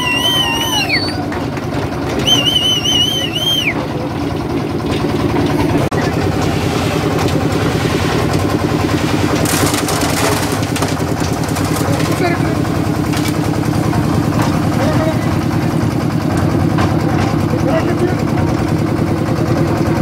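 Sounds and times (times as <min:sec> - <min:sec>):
wavering high whistle: 0:00.0 - 0:01.3, 0:02.2 - 0:03.8
concrete mixer engine running: 0:00.0 - 0:20.0.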